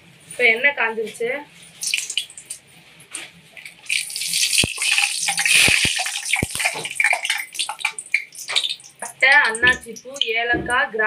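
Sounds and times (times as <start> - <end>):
spices sizzling in hot oil: 1.8 - 2.6, 3.7 - 10.2
oil popping and crackling: 1.8 - 2.7, 3.5 - 10.3.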